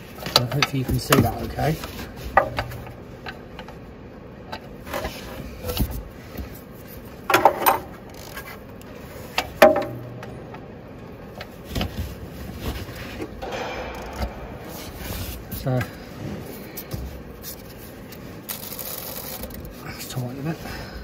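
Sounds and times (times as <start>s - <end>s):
loud metal knocks: 2.4s - 3.1s, 9.6s - 10.6s, 13.4s - 16.4s.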